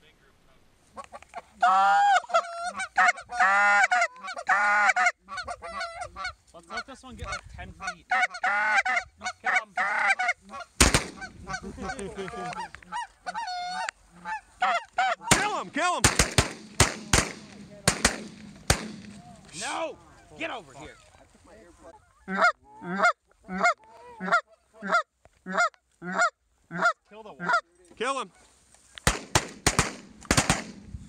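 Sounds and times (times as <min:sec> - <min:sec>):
goose honking and clucking: 0:00.9 - 0:15.9, 0:19.2 - 0:28.6
sharp bang: 0:15.3 - 0:19.3.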